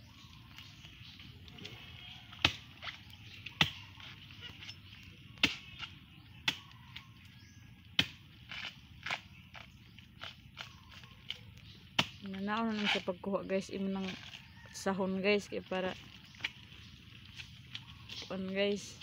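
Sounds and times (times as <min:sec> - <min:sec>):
chopping into a rotting log: 0:02.3 - 0:04.2, 0:05.4 - 0:07.1, 0:07.9 - 0:13.0.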